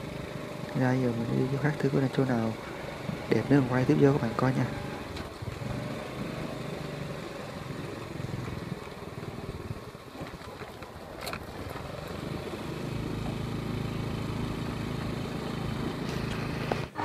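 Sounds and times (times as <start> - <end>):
vehicle engine hum: 0.0 - 17.0.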